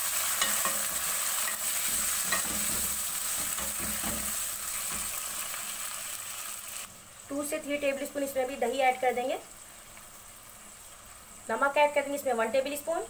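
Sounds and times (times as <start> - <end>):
vegetables sizzling in oil: 0.0 - 13.0
utensil scraping and tapping pan: 0.4 - 5.2.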